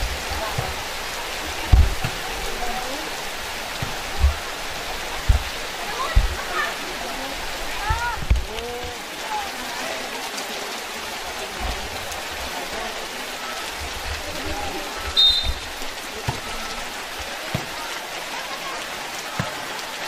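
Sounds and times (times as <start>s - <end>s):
heavy rain on concrete: 0.0s - 20.0s
short high whistle: 15.1s - 15.6s.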